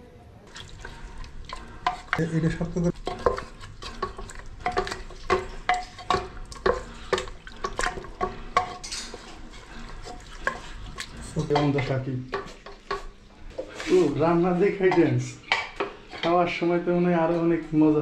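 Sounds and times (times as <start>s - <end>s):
wooden spatula scraping metal pot: 0.5s - 17.8s.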